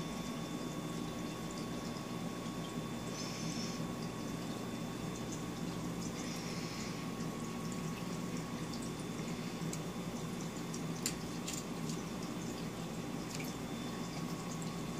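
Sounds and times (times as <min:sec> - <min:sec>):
bubbling and trickling water: 0:00.0 - 0:14.9
faint drip-like clicks: 0:03.9 - 0:06.3, 0:07.1 - 0:14.9.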